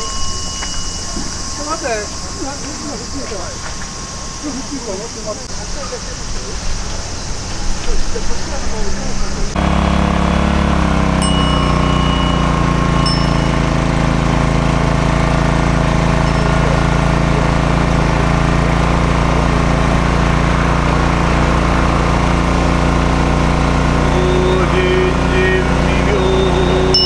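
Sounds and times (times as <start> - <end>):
brief high rings: 0.0 - 5.4, 11.1 - 14.9, 26.8 - 27.0
generator engine running: 0.0 - 27.0.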